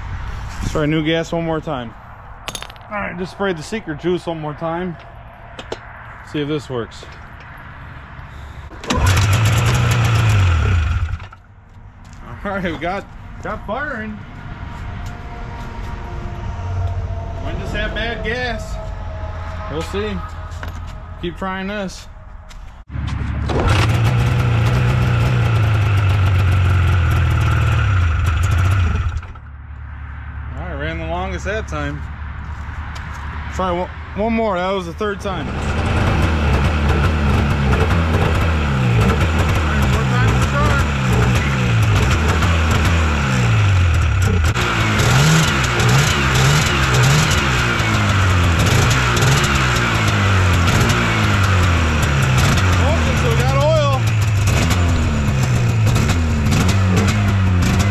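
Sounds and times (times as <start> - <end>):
engine revving: 7.9 - 11.5, 12.2 - 31.9, 35.0 - 57.9
snowmobile engine running: 8.8 - 11.2, 35.8 - 44.7, 48.0 - 57.9.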